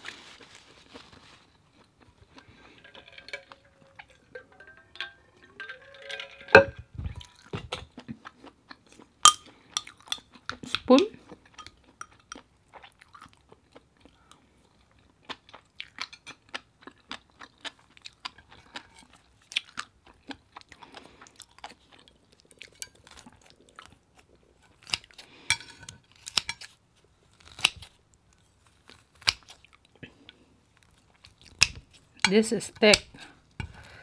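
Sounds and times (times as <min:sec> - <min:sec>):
chewing and mouth sounds: 0:07.0 - 0:26.8.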